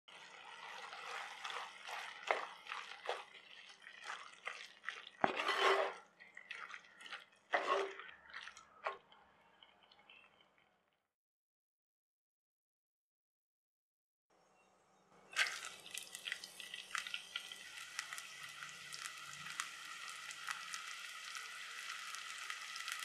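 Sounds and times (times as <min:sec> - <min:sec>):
sauce sizzling and bubbling: 0:00.1 - 0:10.5, 0:15.4 - 0:23.0
spatula stirring wet food: 0:00.1 - 0:10.6.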